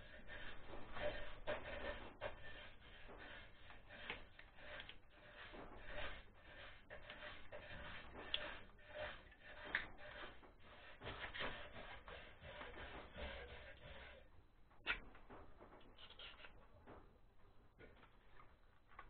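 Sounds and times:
hands rubbing and scraping parts: 0.0 - 19.0.

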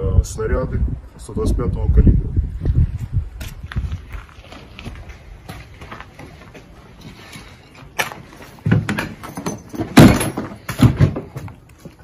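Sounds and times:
heavy wooden thuds: 8.6 - 12.0.

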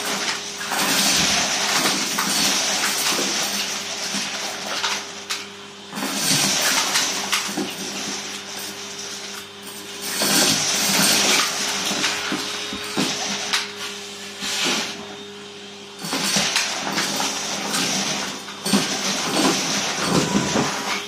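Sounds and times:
vacuum cleaner suction: 6.0 - 21.0.

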